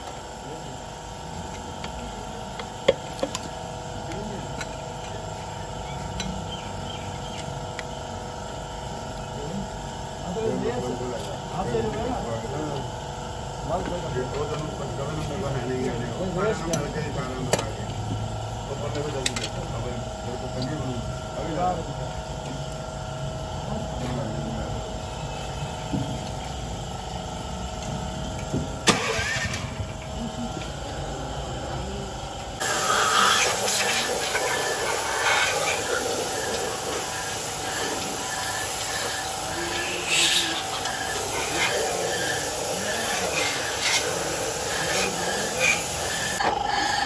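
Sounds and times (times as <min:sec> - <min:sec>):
machine drone with tones: 0:00.0 - 0:14.2, 0:15.6 - 0:47.0
spray gun hissing: 0:32.6 - 0:46.4.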